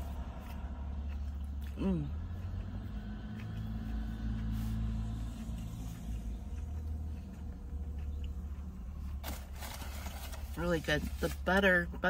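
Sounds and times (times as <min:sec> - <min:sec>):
chewing biscuit: 0:00.0 - 0:09.6
vehicle engine idling: 0:00.0 - 0:12.0.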